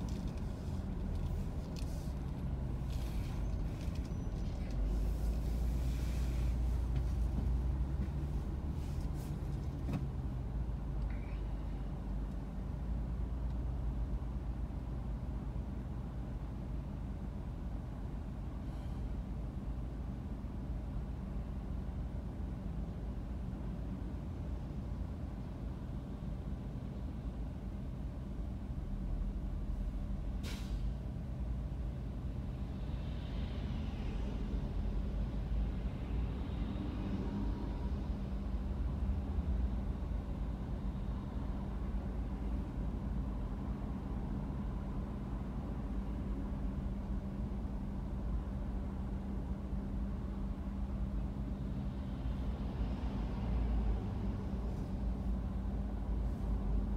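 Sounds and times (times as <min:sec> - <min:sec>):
faint traffic hiss: 0:00.0 - 0:10.0
traffic engine and road rumble: 0:00.0 - 0:56.9
air brakes hissing: 0:30.4 - 0:31.0.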